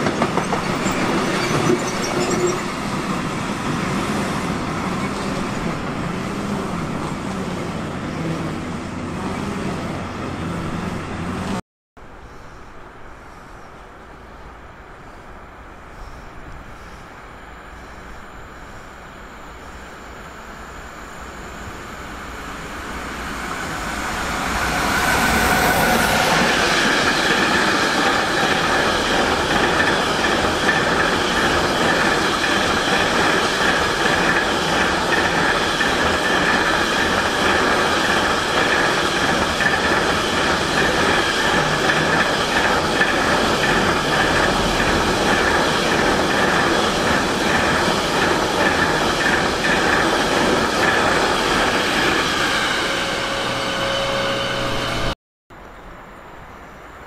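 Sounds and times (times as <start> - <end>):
train wheels clattering on rails: 0.0 - 3.2, 24.3 - 52.5
faint squeal: 51.9 - 55.2.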